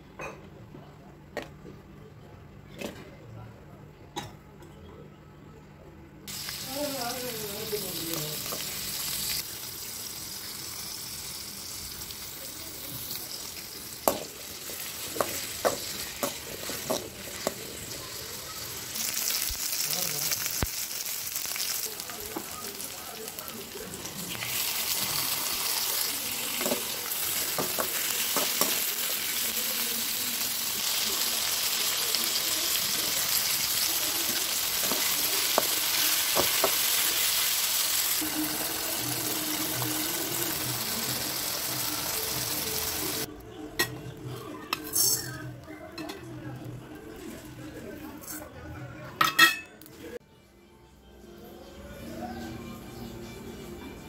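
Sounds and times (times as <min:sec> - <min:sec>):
vegetables sizzling in pan: 0:06.3 - 0:43.3.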